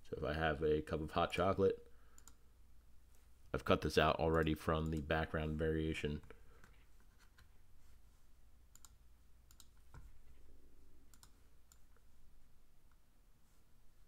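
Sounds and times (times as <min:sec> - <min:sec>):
faint computer mouse clicks: 0:02.1 - 0:02.4, 0:08.7 - 0:10.1.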